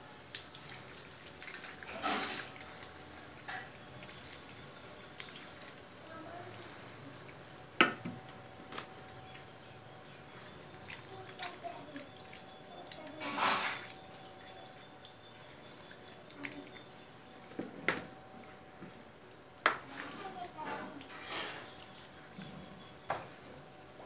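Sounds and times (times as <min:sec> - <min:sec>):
wet squelching of marinated chicken: 0:00.0 - 0:17.5.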